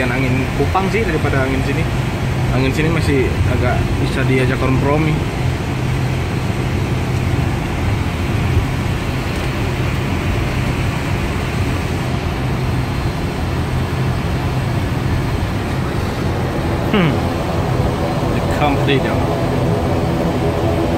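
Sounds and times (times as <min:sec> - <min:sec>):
rushing noise: 0:00.0 - 0:20.9
turboprop engines humming: 0:00.0 - 0:20.9.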